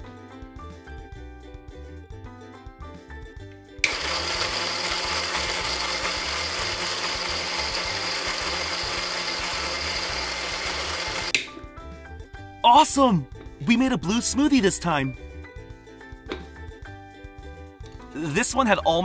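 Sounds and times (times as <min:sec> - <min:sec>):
background music: 0:00.0 - 0:19.0
toy blender switch click: 0:03.8 - 0:05.1, 0:10.2 - 0:11.5
toy blender whirring: 0:03.8 - 0:11.4.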